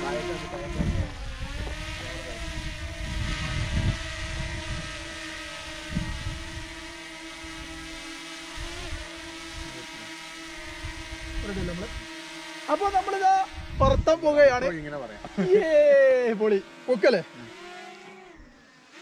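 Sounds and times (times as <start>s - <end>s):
wind buffeting microphone: 0.0s - 6.9s, 13.5s - 14.9s
drone propellers whining: 0.0s - 19.0s.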